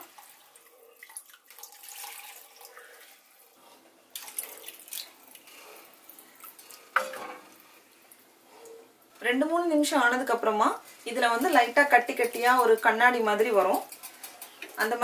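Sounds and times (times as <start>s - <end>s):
slurry pouring into syrup: 0.1s - 3.4s
wooden spoon stirring: 10.8s - 15.0s.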